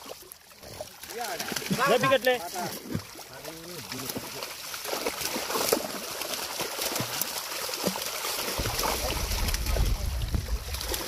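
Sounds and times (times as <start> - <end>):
fish splashing in net: 0.0 - 11.0
low rumble: 8.6 - 11.0.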